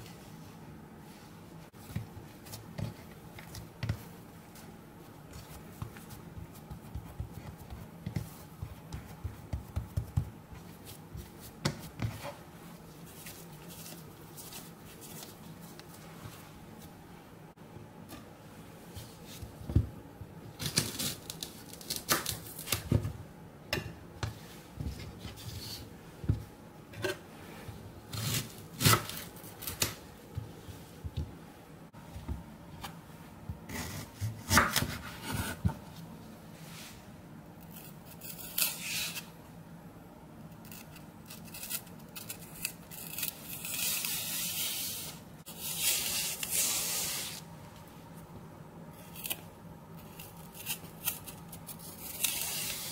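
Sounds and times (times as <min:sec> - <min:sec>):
knife peeling and scraping: 0:37.6 - 0:39.3, 0:40.6 - 0:47.4, 0:49.0 - 0:52.9.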